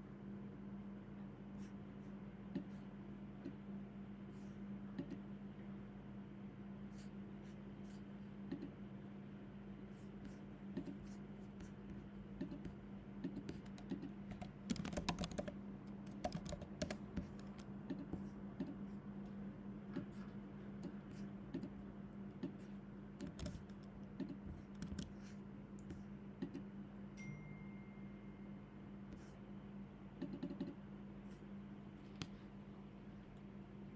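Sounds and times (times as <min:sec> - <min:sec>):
steady low hum: 0:00.0 - 0:33.9
computer keyboard keystrokes: 0:12.4 - 0:18.8, 0:23.2 - 0:25.2.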